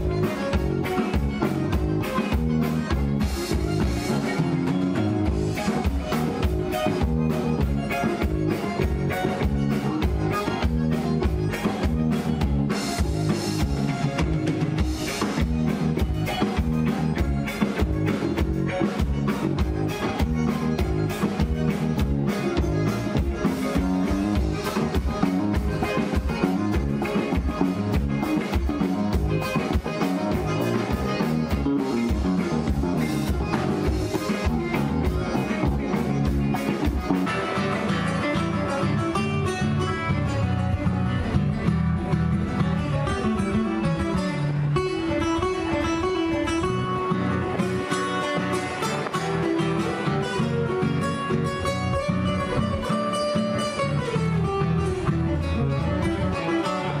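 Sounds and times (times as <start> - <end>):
steady drum beat: 0.0 - 38.1
accordion: 0.0 - 57.0
electric bass: 0.0 - 57.0
electric guitar: 0.0 - 57.0.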